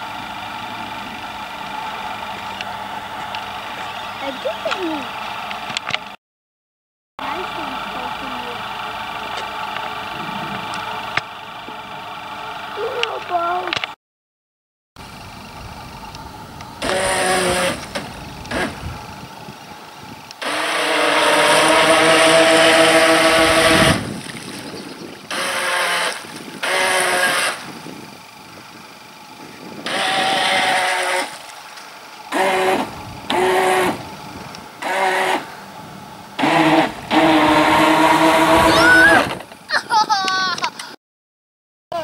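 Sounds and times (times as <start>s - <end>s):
model boat motor whine: 7.2s - 13.9s, 15.0s - 39.6s.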